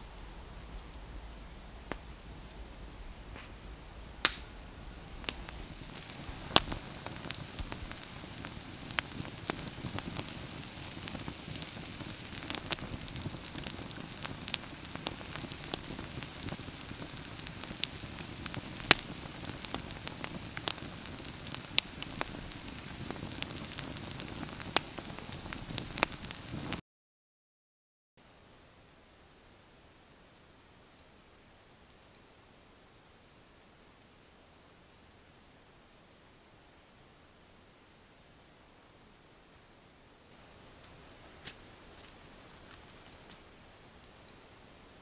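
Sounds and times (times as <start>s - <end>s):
low rush of flame: 0.0s - 26.8s
wood fire crackling and popping: 1.8s - 2.6s, 4.2s - 26.8s, 40.8s - 43.5s.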